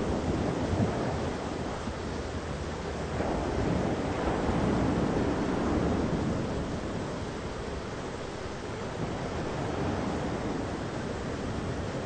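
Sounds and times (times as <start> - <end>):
thunderstorm rushing noise: 3.0 - 8.1.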